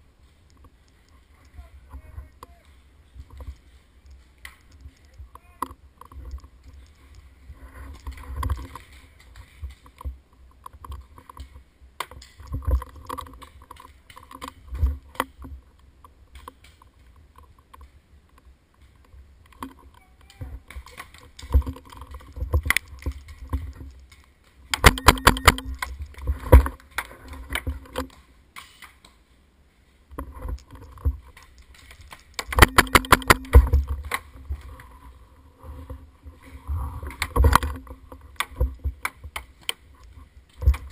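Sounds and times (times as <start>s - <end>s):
paintball marker rapid firing: 24.8s - 25.7s, 32.4s - 33.6s.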